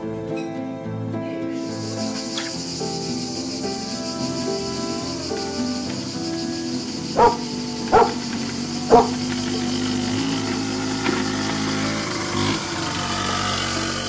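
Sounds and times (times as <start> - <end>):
scooter engine running: 2.6 - 14.0
dog barks: 7.2 - 9.3.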